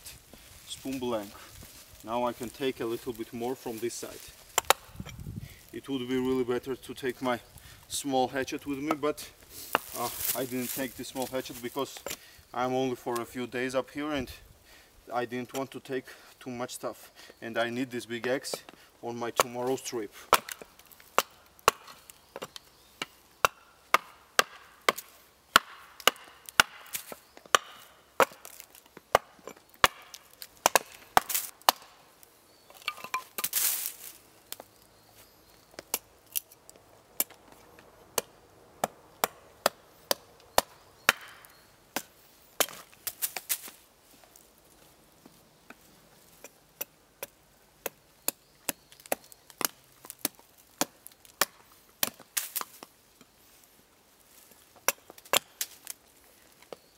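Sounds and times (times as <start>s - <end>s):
axe chopping wood: 4.5s - 5.2s, 9.7s - 10.8s, 19.4s - 19.6s, 20.3s - 32.0s, 38.1s - 43.7s, 46.4s - 52.9s, 54.8s - 55.8s.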